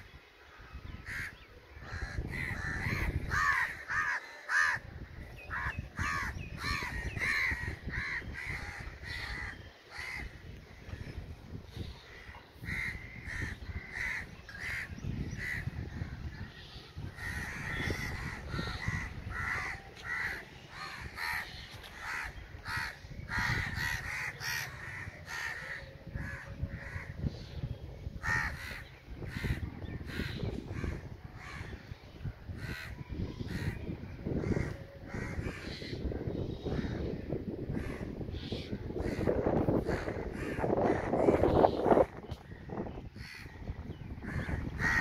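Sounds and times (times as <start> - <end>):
crows cawing: 1.0 - 4.8, 5.5 - 10.4, 12.1 - 15.7, 17.2 - 27.2, 28.2 - 31.8, 34.4 - 42.1, 42.7 - 45.0.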